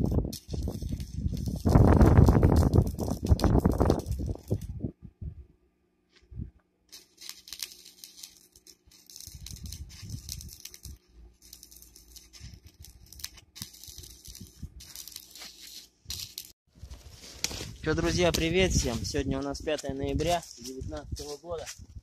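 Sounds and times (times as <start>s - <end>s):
arc welding crackling: 0.0s - 4.9s, 6.9s - 21.7s.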